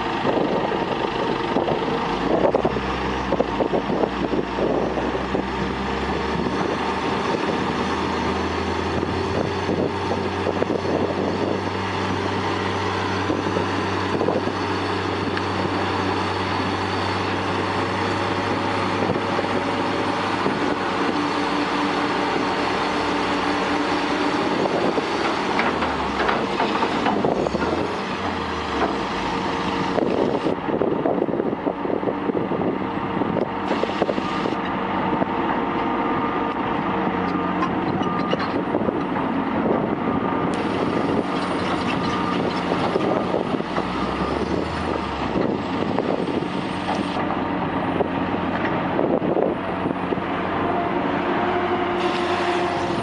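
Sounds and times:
heavy diesel machinery running: 0:00.0 - 0:53.0
clanking of tracks and metal: 0:02.1 - 0:30.6, 0:37.2 - 0:39.4, 0:40.5 - 0:47.8, 0:50.7 - 0:53.0.

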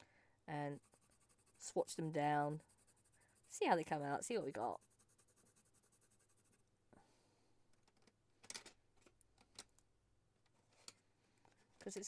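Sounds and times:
pencil scratching on paper: 0:00.5 - 0:06.6.

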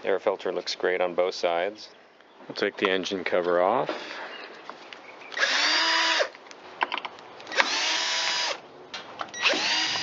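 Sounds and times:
power drill motor whine: 0:05.4 - 0:06.3, 0:07.5 - 0:08.6, 0:09.3 - 0:10.0.

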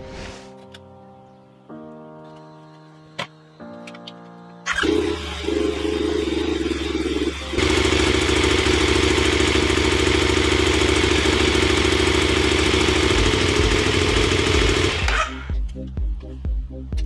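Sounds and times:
motorcycle engine idling: 0:04.7 - 0:15.5.

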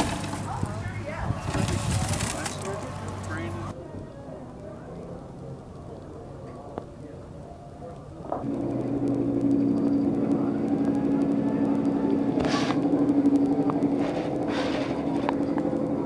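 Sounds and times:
machine humming: 0:08.3 - 0:16.0.

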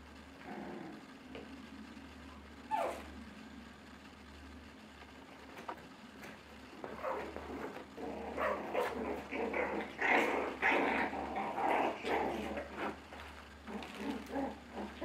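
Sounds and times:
puppies growling and yapping: 0:00.4 - 0:01.1, 0:02.6 - 0:03.2, 0:06.7 - 0:15.0.

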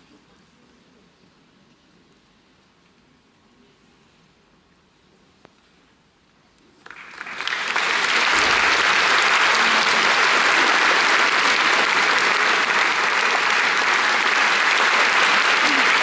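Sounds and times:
audience applause: 0:06.8 - 0:16.0.

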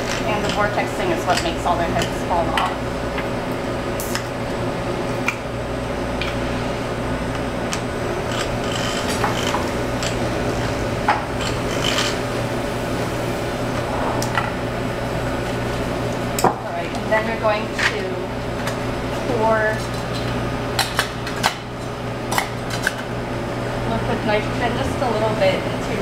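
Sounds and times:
vortex mixer motor buzzing: 0:08.0 - 0:16.2.

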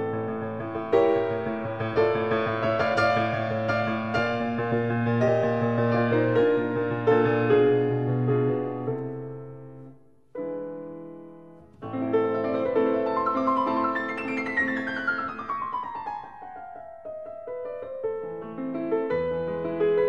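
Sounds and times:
piano music: 0:00.0 - 0:20.0.

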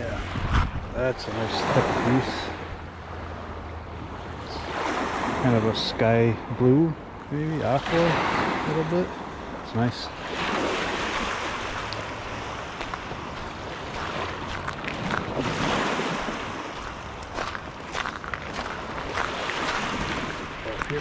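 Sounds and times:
waves washing onto shore: 0:00.0 - 0:21.0.

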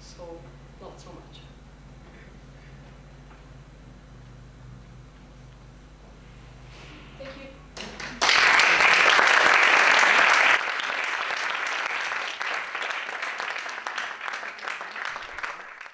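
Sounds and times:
audience applauding: 0:07.8 - 0:15.9.

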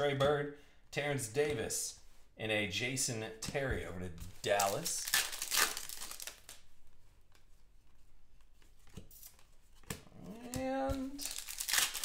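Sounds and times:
short pitched vocal sound: 0:10.1 - 0:11.2.

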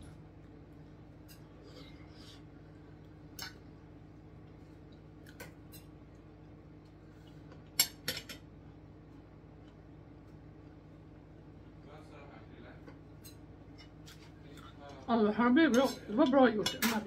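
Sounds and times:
low steady hum: 0:00.0 - 0:17.0
cutlery clinking on a plate: 0:07.8 - 0:08.4, 0:15.7 - 0:17.0.

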